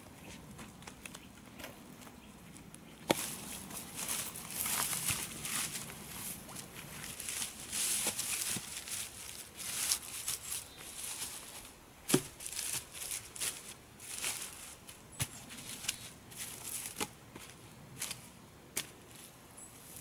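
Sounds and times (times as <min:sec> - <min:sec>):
gloved hands rustling moss: 0:03.0 - 0:20.0.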